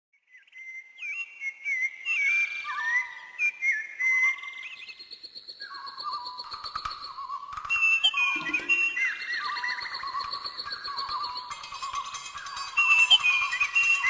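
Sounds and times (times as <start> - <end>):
whistles sliding and trilling: 7.6 - 14.0
steady high trilling whistle: 10.8 - 14.0.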